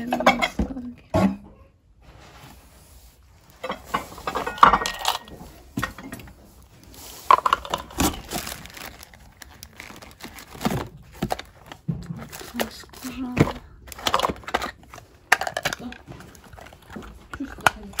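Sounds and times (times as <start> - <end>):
objects rattling in cardboard boxes: 3.5 - 18.0
paper rustling: 6.5 - 15.0.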